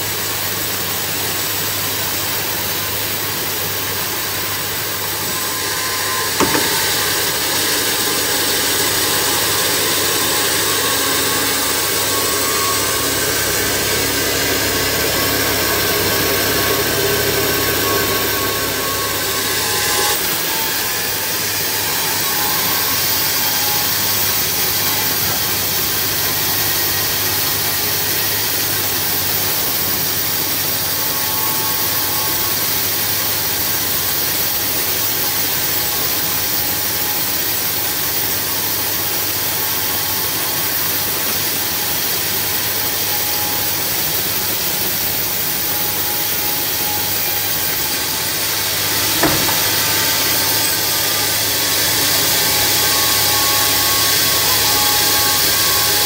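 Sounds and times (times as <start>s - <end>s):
saw hissing through wood: 0.1s - 56.0s
motor and drive hum: 3.2s - 30.3s, 42.9s - 56.0s
sharp knock: 6.1s - 7.0s, 49.2s - 50.0s.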